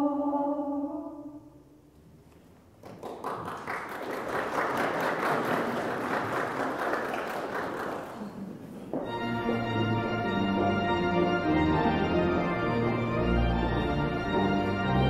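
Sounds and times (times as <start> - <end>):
congregation applauding: 2.7 - 10.4.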